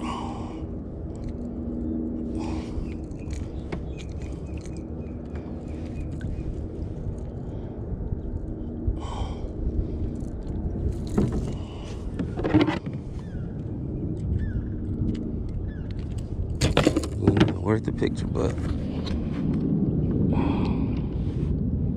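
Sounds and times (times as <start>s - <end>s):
low rumble: 0.0s - 21.9s
clicks and knocks of gear: 1.1s - 6.4s, 10.2s - 17.7s.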